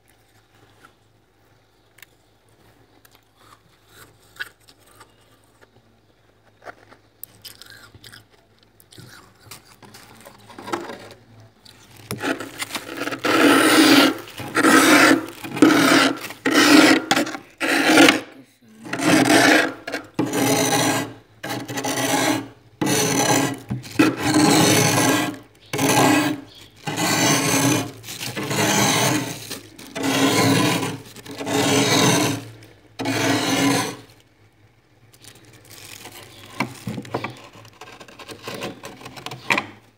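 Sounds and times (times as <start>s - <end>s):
frost scraping: 11.8s - 34.2s, 35.1s - 39.6s.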